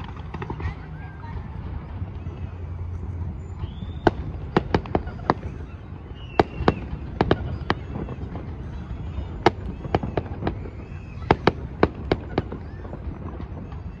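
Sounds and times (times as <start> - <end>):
fireworks bursting: 3.4 - 14.0.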